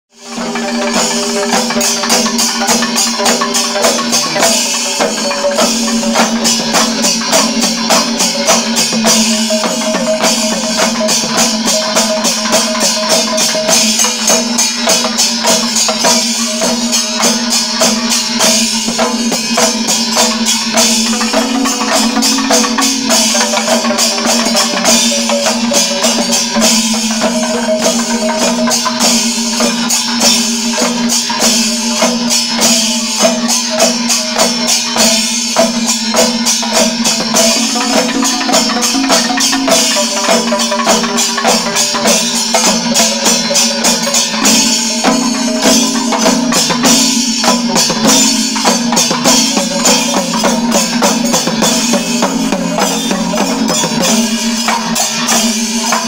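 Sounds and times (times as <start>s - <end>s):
temple drums and cymbals ensemble: 0.2s - 56.0s
steady held tone: 0.4s - 33.2s.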